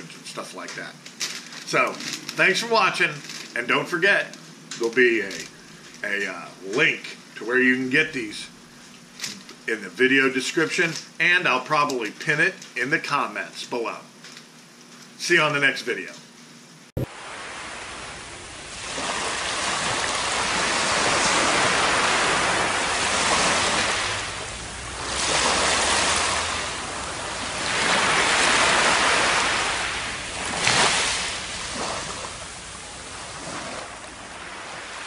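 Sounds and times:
water splash: 0:17.0 - 0:35.0
waves washing on beach: 0:17.0 - 0:35.0.

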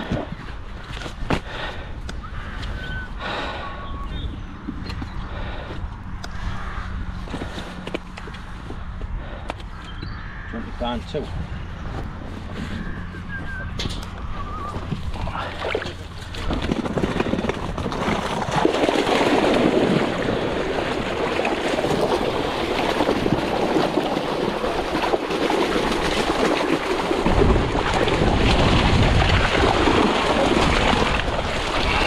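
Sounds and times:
wind rumble on microphone: 0:00.0 - 0:32.0
water splashing and sloshing: 0:13.8 - 0:32.0.

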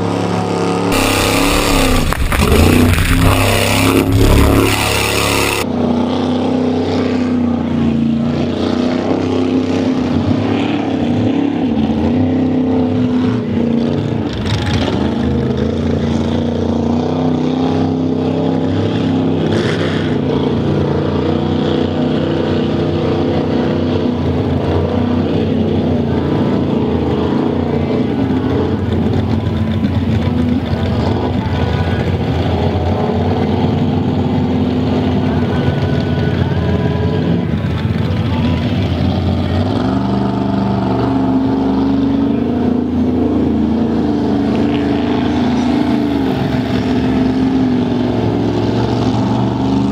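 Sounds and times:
truck engine revving: 0:00.0 - 0:49.9
truck ploughing through mud: 0:28.3 - 0:49.9.

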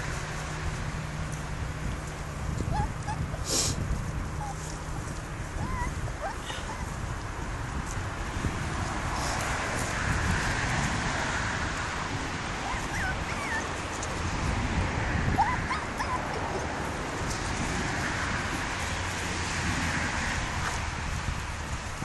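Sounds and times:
puppies whimpering and yipping: 0:02.6 - 0:03.5, 0:04.3 - 0:07.0, 0:12.6 - 0:14.2, 0:15.2 - 0:16.9.

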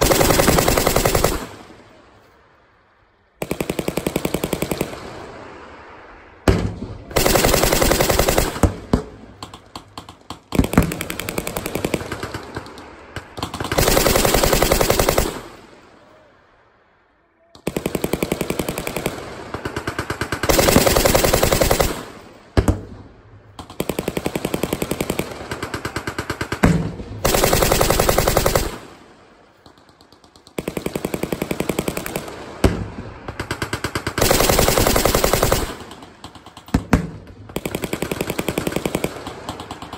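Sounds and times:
machine guns firing bursts: 0:00.0 - 0:01.7, 0:03.4 - 0:05.3, 0:07.1 - 0:15.6, 0:17.6 - 0:22.4, 0:23.6 - 0:39.9.

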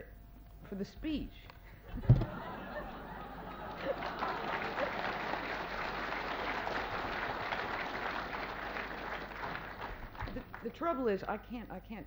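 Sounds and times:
audience applauding: 0:02.2 - 0:10.9.

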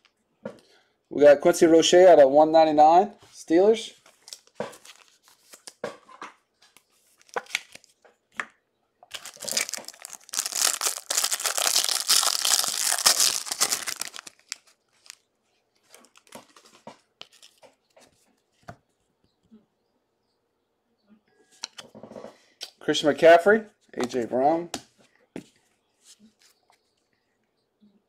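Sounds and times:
foil wrapper tearing and crinkling: 0:09.1 - 0:15.2.

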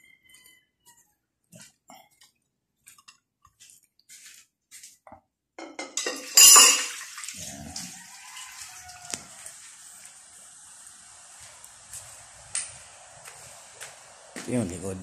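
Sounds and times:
water running: 0:05.8 - 0:15.0.

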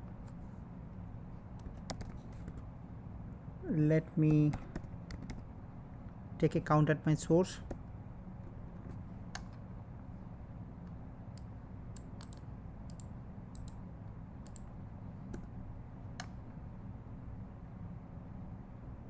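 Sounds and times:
low background hum: 0:00.0 - 0:19.0
computer keyboard and mouse clicks: 0:01.6 - 0:02.6, 0:04.3 - 0:05.4, 0:09.3 - 0:09.6, 0:11.4 - 0:13.8, 0:14.4 - 0:14.7.

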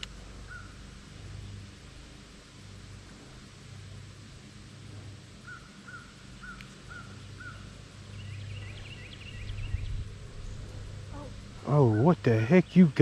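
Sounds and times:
birds calling: 0:00.0 - 0:01.6, 0:05.4 - 0:13.0
low steady rumble: 0:00.0 - 0:13.0.

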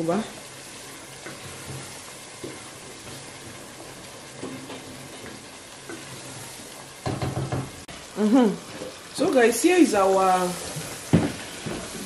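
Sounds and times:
soup sizzling hiss: 0:00.0 - 0:12.0.

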